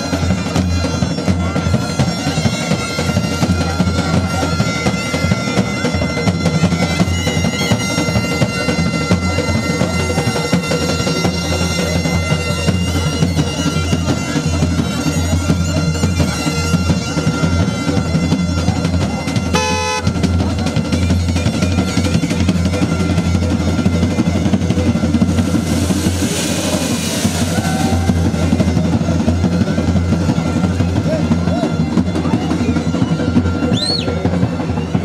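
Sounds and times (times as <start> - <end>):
loud music with drum beat: 0.0 - 35.0
heavy steady bass: 19.6 - 20.2.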